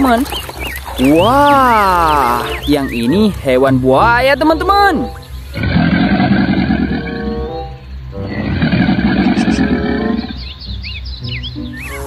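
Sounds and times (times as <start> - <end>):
background music: 1.0 - 12.0
crocodile roaring: 5.6 - 7.4, 8.2 - 10.4.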